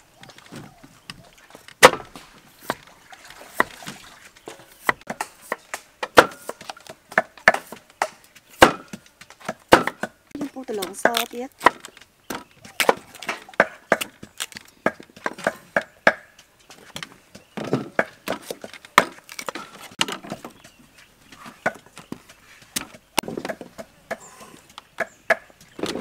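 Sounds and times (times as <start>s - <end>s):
cleaver chopping on wooden block: 1.8s - 2.8s, 4.5s - 10.2s, 10.8s - 16.4s, 17.6s - 20.2s.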